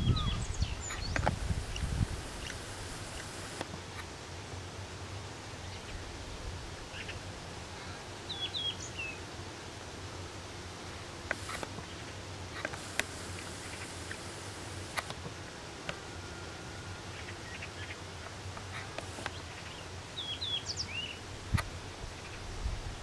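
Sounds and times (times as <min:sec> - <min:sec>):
bird chirping: 0:00.0 - 0:03.6, 0:08.3 - 0:09.2, 0:18.8 - 0:21.2
steady hiss: 0:00.0 - 0:23.0
small clicks: 0:12.6 - 0:15.2.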